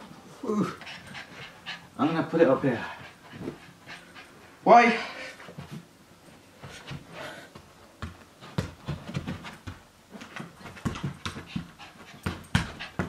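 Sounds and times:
puppy panting: 0.8 - 4.6, 10.7 - 13.0
bare footsteps on carpet: 6.6 - 13.0.

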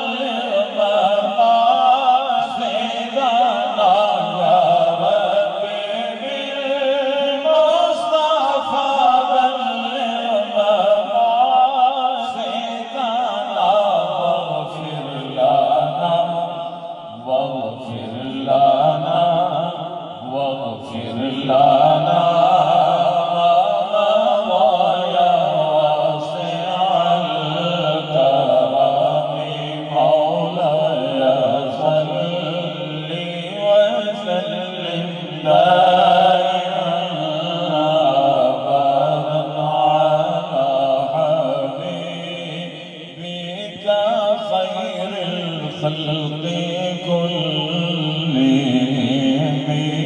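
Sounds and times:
man chanting with vibrato: 0.0 - 50.0.

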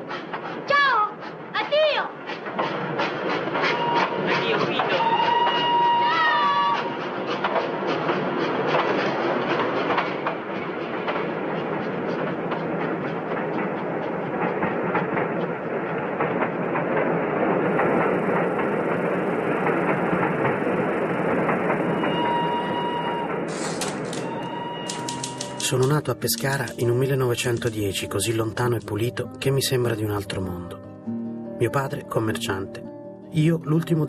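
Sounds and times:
train rumbling on rails: 0.0 - 34.0
wheels clacking over rail joints: 7.1 - 29.1
typewriter keys clacking: 23.5 - 27.9.

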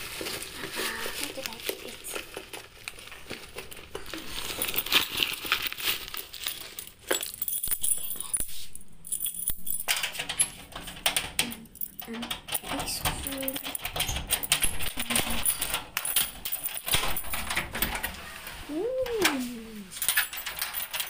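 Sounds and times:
keys jingling: 6.1 - 18.2, 19.9 - 21.0.

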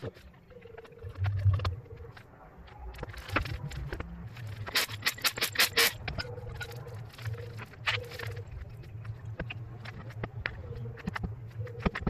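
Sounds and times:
low hum: 0.0 - 4.7
sharp metallic clicks and clinks: 2.9 - 10.3.

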